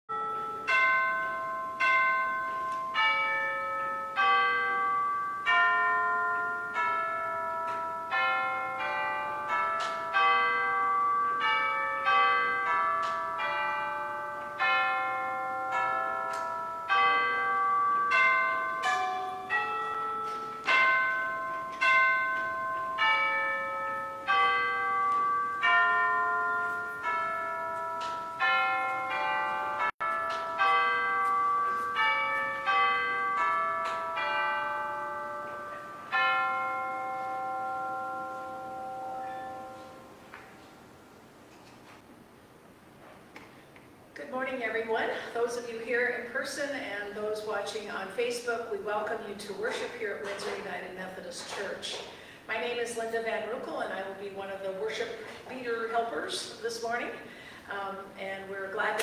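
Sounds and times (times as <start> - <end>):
bells playing a tune: 0.1 - 41.2.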